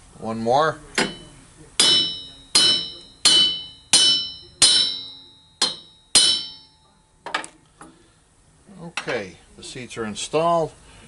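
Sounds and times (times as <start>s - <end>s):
ringing metal hammer blows: 1.0s - 6.9s.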